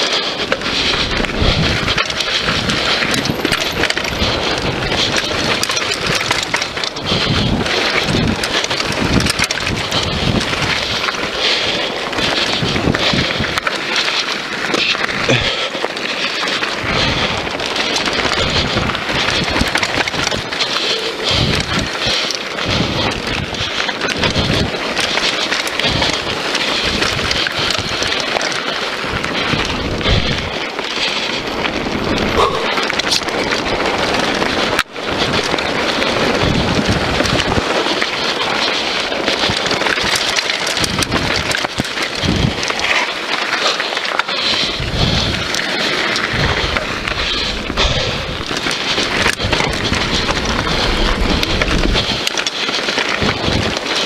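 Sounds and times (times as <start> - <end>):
bike rattling: 0.0 - 54.0
tyre noise on dirt: 0.0 - 54.0
wind on microphone: 0.5 - 11.4, 12.0 - 13.7, 16.8 - 28.2, 29.0 - 30.6, 31.4 - 43.0, 44.6 - 52.4, 53.0 - 54.0
low thumps over bumps: 29.1 - 30.6, 31.7 - 37.7, 46.3 - 52.3.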